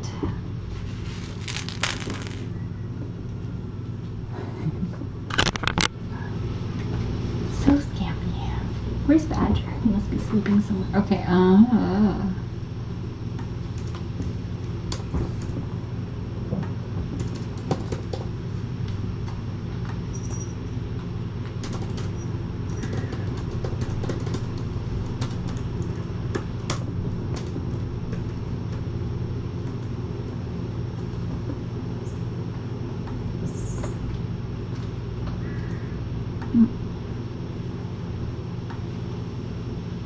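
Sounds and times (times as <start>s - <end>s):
low hum: 0.0s - 9.0s.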